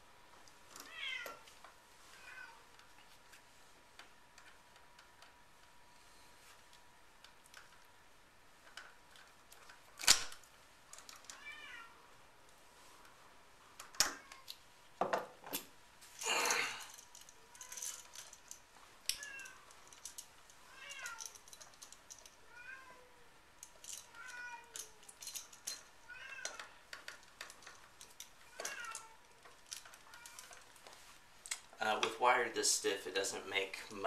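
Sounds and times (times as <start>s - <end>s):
rustle: 0.0s - 34.0s
cat meowing: 0.9s - 1.4s, 11.4s - 12.0s, 20.7s - 21.4s, 22.5s - 23.2s, 24.1s - 25.0s, 26.0s - 26.8s, 28.5s - 29.4s
hand tools clicking and knocking: 23.6s - 32.2s.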